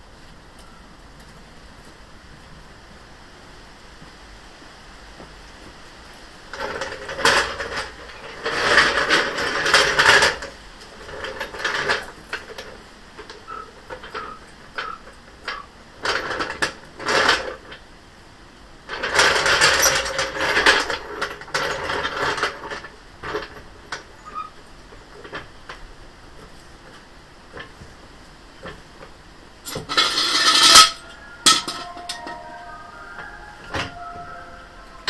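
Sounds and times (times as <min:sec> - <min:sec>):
metallic rattling and clicking of tools: 0:06.5 - 0:17.6, 0:18.9 - 0:24.5, 0:28.6 - 0:32.5.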